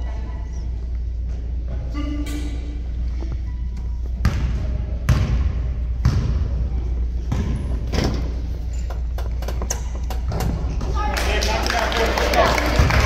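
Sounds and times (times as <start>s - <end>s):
steady low hum: 0.0s - 11.6s
basketball bouncing on a court: 4.2s - 7.9s.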